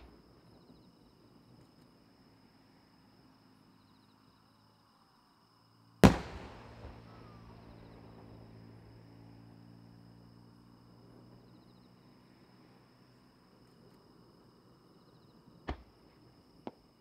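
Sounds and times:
insects chirping: 0:00.0 - 0:17.0
firework boom with echo: 0:06.0 - 0:08.3.

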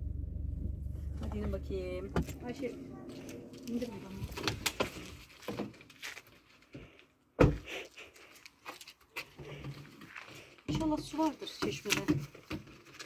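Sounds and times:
loud thump: 0:00.0 - 0:02.5.

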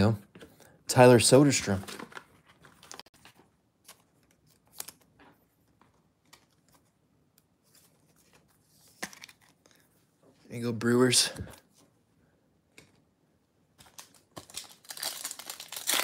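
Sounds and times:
trading cards rustling: 0:01.4 - 0:09.9, 0:13.8 - 0:16.0.

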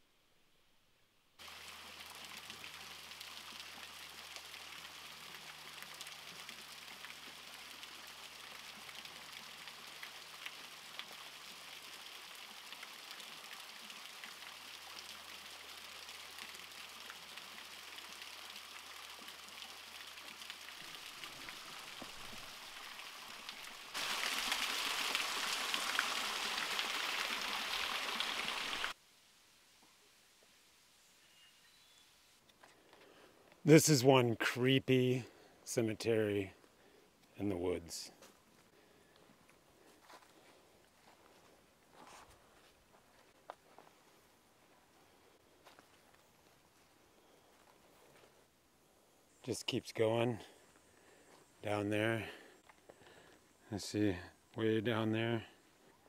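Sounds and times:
creek water rushing over rocks: 0:01.4 - 0:29.0.

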